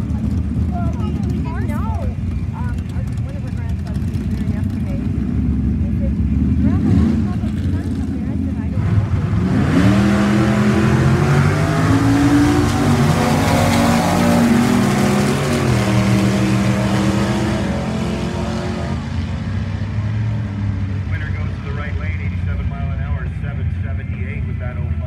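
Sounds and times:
racing car engines at full throttle: 0:00.0 - 0:25.0.

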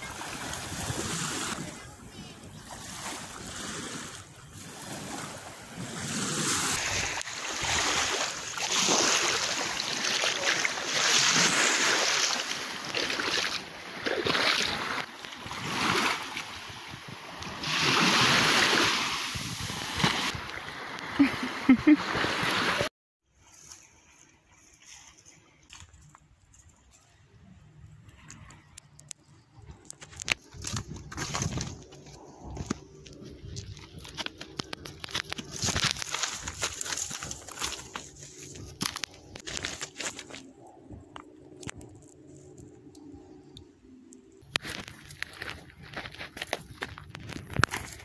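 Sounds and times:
gusty wind: 0:14.7 - 0:22.9.

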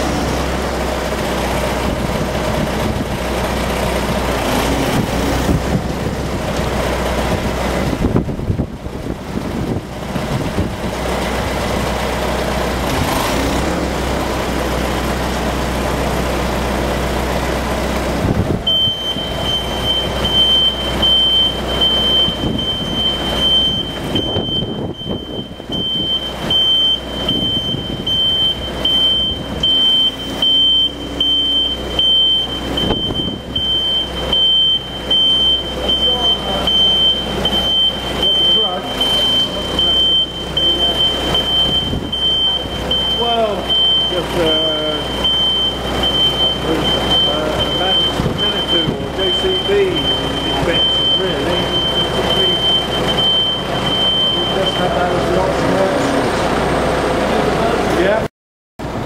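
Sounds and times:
diesel engine running: 0:00.0 - 0:59.0
reversing alarm beeping: 0:18.7 - 0:55.8.

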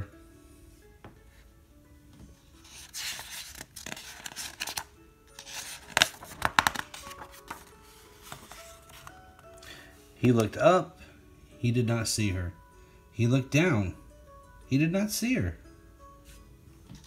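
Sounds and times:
book page rustling: 0:02.3 - 0:09.6, 0:16.2 - 0:17.0
page flapping: 0:02.6 - 0:09.2.

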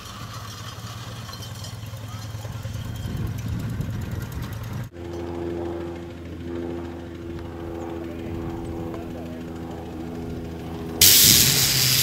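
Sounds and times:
steam engine exhaust beats: 0:00.0 - 0:12.0.

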